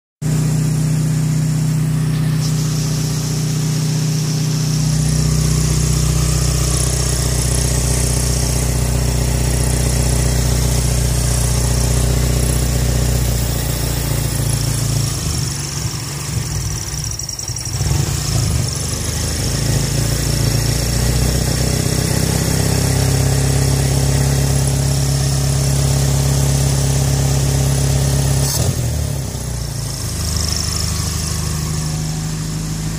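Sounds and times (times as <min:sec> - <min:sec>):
car engine idling: 0:00.2 - 0:20.6, 0:29.2 - 0:32.9.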